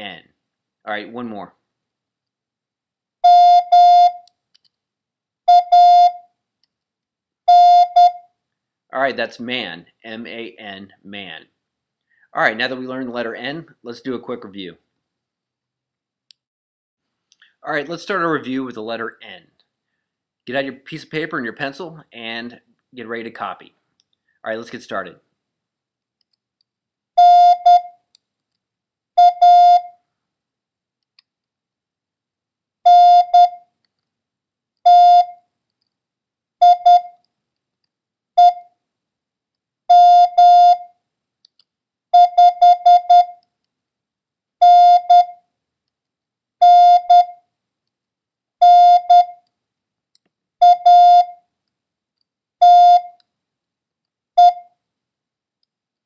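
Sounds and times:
morse code beeps: 5.5 - 6.2, 27.2 - 27.9, 29.2 - 29.9, 32.9 - 33.6, 34.9 - 35.4, 36.6 - 37.2, 38.4 - 38.7, 39.9 - 40.9, 42.2 - 43.4, 44.6 - 45.4, 46.6 - 47.4, 48.6 - 49.4, 50.6 - 51.4, 52.6 - 53.2, 54.4 - 54.7.

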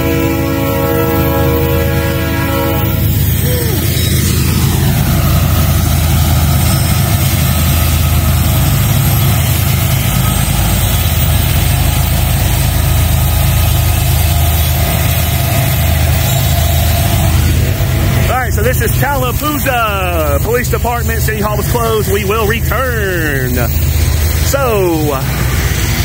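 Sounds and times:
diesel locomotive engine drone: 0.0 - 26.0.

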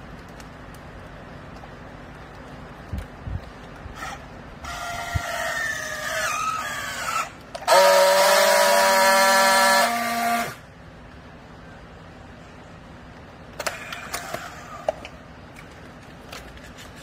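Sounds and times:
strapping tool motor whine: 4.0 - 10.6
strapping tool welding buzz: 7.6 - 10.6.

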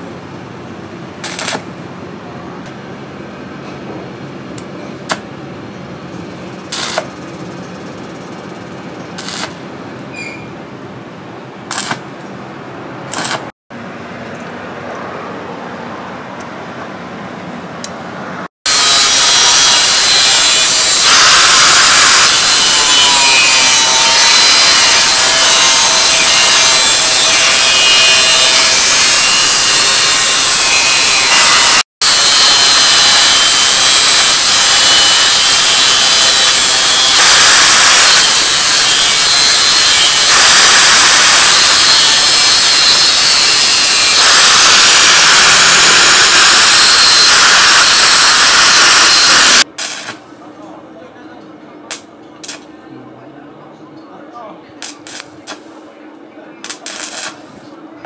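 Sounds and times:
angle grinder cutting steel: 1.2 - 1.6, 6.7 - 7.1, 9.2 - 9.6, 18.7 - 50.2.

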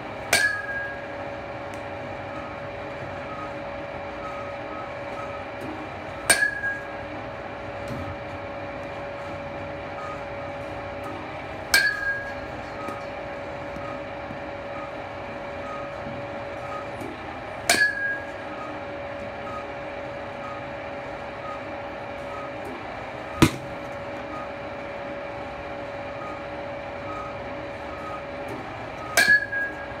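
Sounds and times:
pitching machine hum: 0.0 - 30.0
metal bat hitting balls: 0.3 - 1.8, 6.2 - 7.0, 11.7 - 12.5, 17.6 - 18.4, 23.4 - 23.9, 29.1 - 29.9.

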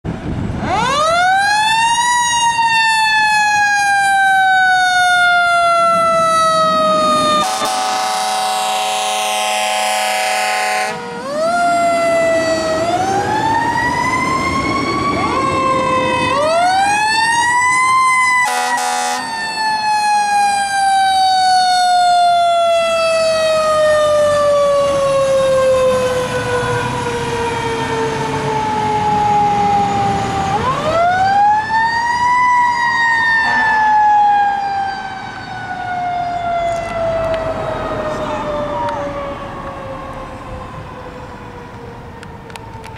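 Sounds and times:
fire engine sirens wailing: 0.0 - 42.9
fire engine horn blasts: 7.2 - 11.4, 18.4 - 19.4, 33.4 - 33.8.

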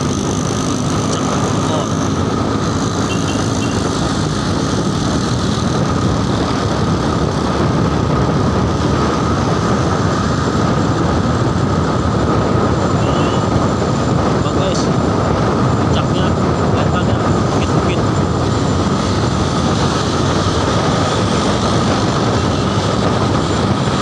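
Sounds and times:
motorcycle engine: 0.0 - 24.0
wind rushing over microphone: 0.0 - 24.0.

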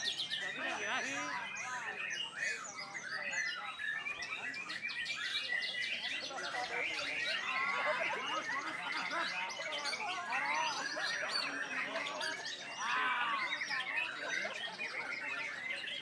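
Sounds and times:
bird singing whistles and trills: 0.0 - 0.6, 1.3 - 12.8.

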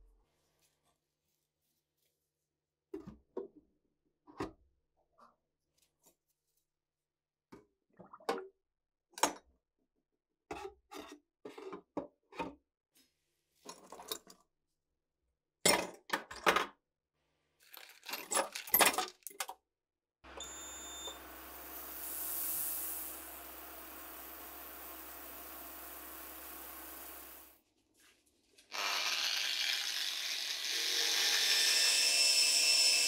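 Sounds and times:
metal parts clinking and scraping: 17.6 - 19.5
ultrasonic cleaner hissing: 20.4 - 27.6.

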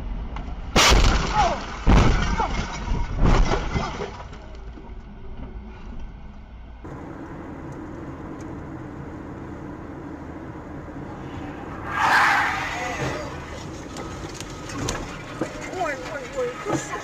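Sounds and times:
tyre and engine hum: 4.6 - 17.0
low rumble inside car: 4.8 - 11.9.

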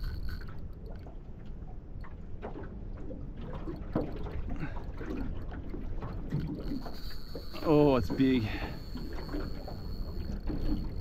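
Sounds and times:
light knocks and splashes: 0.2 - 11.0
water slapping against boat hull: 0.9 - 8.4.

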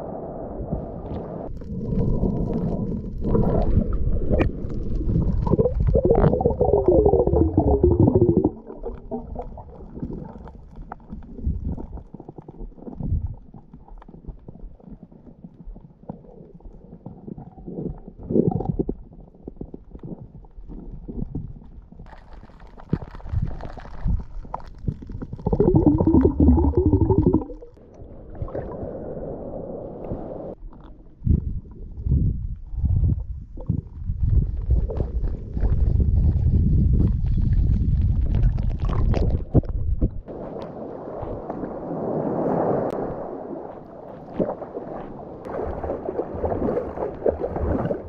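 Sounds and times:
muffled underwater rumbling: 0.0 - 48.0
bubbling bursts: 1.5 - 13.4, 17.1 - 19.2, 24.9 - 28.8, 38.2 - 40.3.

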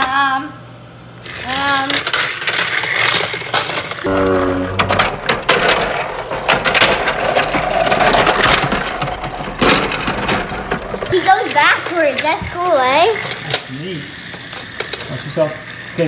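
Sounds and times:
toy train clattering on track: 1.2 - 4.1, 4.9 - 16.0
toy train motor whirring: 1.2 - 4.1, 11.1 - 16.0.

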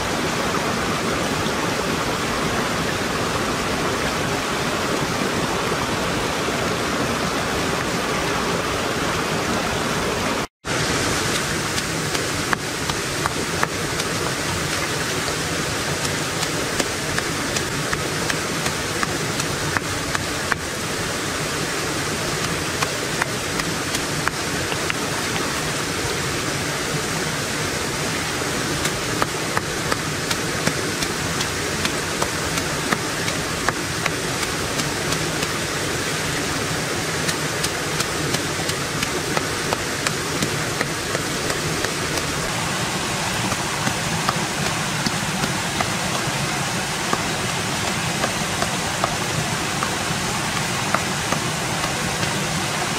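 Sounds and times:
stream running over rocks: 0.0 - 52.9
stone pounding leaves on rock: 11.2 - 15.4, 28.8 - 35.6, 37.3 - 52.5.

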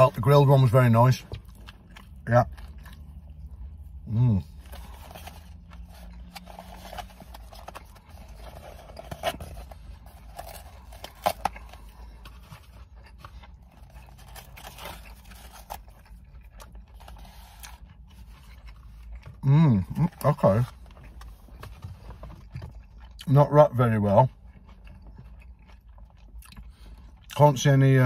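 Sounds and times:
paper wrapper rustling and tearing: 4.6 - 16.0.

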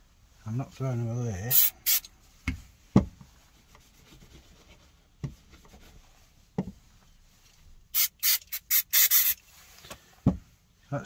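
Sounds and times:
aerosol spray hissing: 1.5 - 2.1, 7.9 - 9.4
soft knocks of parts on bench: 2.4 - 3.3, 6.6 - 6.8, 10.2 - 10.5.

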